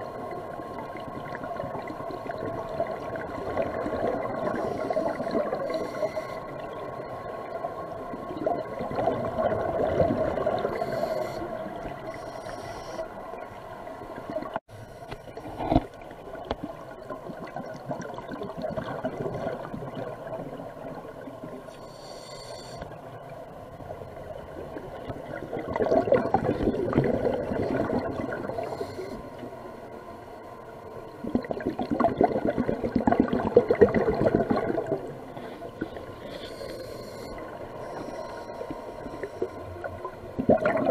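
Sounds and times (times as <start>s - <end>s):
bubbles gurgling underwater: 0.0s - 6.0s, 6.6s - 10.8s, 16.3s - 21.6s, 24.5s - 28.8s, 31.1s - 35.2s, 39.8s - 40.9s
underwater hum: 0.0s - 40.9s.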